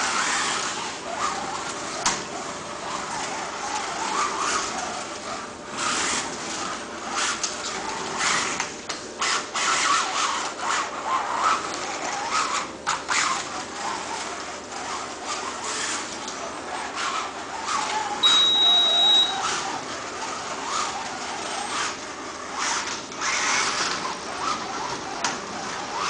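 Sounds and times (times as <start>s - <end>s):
slot car motor whining: 0.0s - 26.0s
high steady tone: 18.2s - 19.6s.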